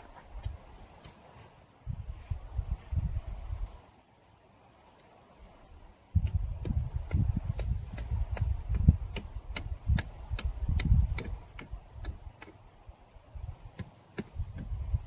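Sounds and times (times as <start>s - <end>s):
wind rumble on microphone: 1.8s - 3.8s, 6.1s - 12.4s, 13.3s - 15.0s.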